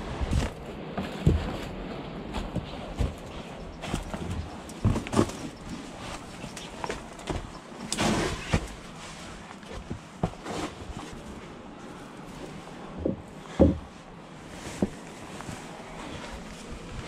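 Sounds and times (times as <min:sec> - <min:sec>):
knocks and scuffs on rock: 0:00.3 - 0:08.9.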